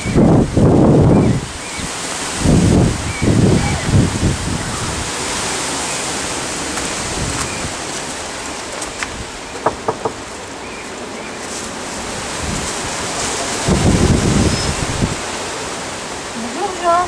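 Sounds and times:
wind buffeting microphone: 0.0 - 10.6, 11.8 - 17.0.

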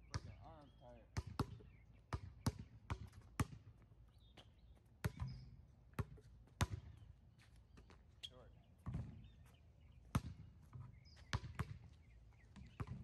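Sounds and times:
basketball bouncing on hard court: 0.1 - 0.4, 1.2 - 3.7, 5.0 - 5.4, 6.0 - 7.0, 10.1 - 10.4, 11.2 - 11.8, 12.6 - 13.0.

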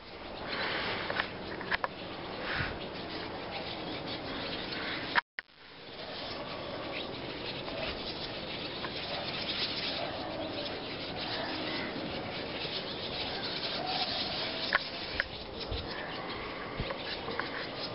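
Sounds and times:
flock of small birds chattering: 0.0 - 17.9.

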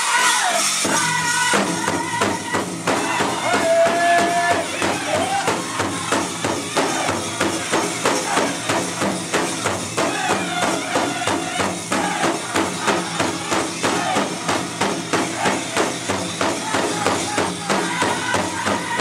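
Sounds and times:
big drum steady beat: 0.0 - 19.0
group of singers: 10.0 - 19.0.

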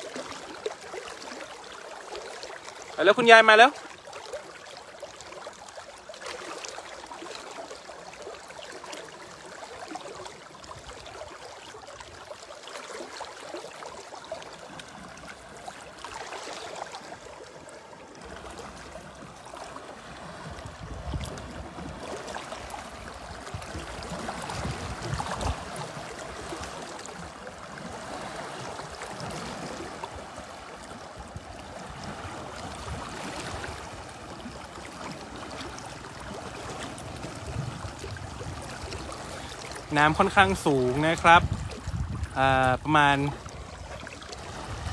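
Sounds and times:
river rushing: 0.0 - 10.3, 21.9 - 44.9.

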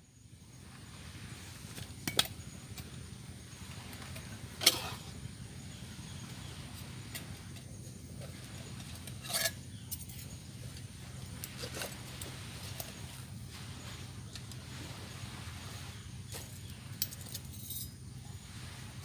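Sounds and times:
low background rumble: 0.0 - 19.0.

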